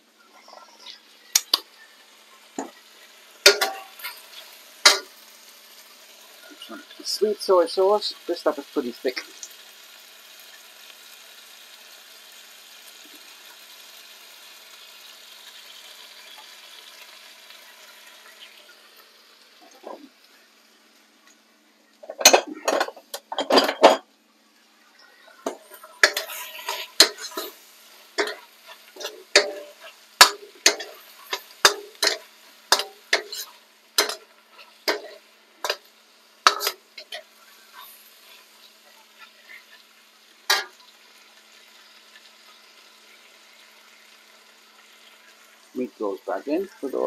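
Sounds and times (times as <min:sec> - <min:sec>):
stir fry sizzling in wok: 0:00.0 - 0:47.0
metal ladle scraping wok: 0:25.5 - 0:35.8, 0:36.4 - 0:38.5.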